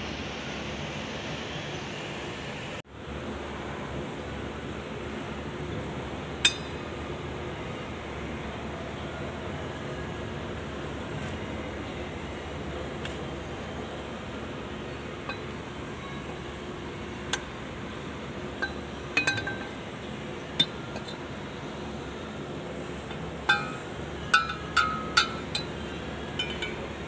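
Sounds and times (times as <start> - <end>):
metal parts clinking: 18.6 - 19.8.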